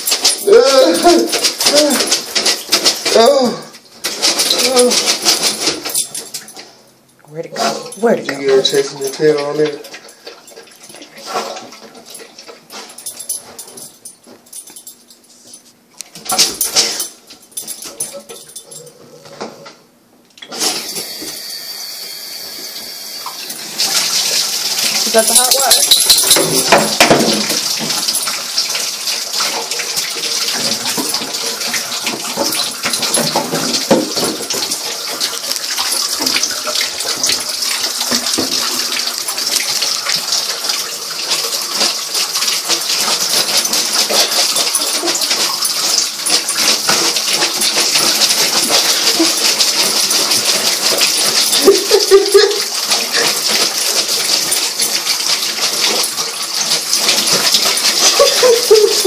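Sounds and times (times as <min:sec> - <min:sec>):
tap water running into bathtub: 0:00.0 - 0:14.9, 0:16.0 - 0:59.0
dog splashing and pawing: 0:00.0 - 0:21.1, 0:23.3 - 0:59.0.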